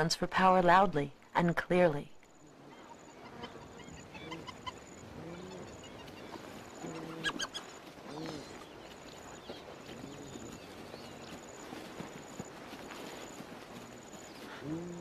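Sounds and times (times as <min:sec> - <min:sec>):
hyenas calling: 0:02.5 - 0:08.8
high-pitched hyena squeals: 0:06.9 - 0:07.7.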